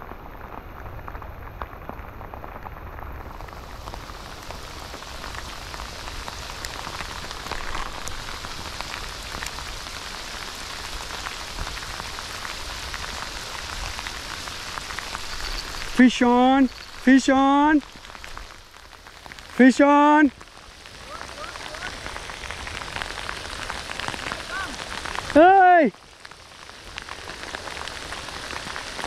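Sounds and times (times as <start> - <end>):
heavy rain falling: 0.0 - 29.0.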